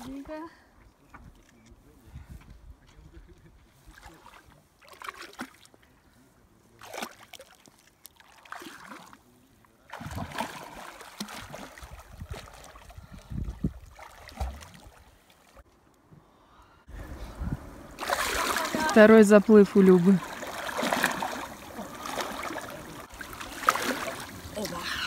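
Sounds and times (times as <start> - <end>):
person wading and splashing: 3.8 - 5.8, 6.7 - 9.2, 9.8 - 15.6, 18.0 - 25.0
water splashing: 3.8 - 5.8, 6.7 - 15.6, 17.9 - 25.0.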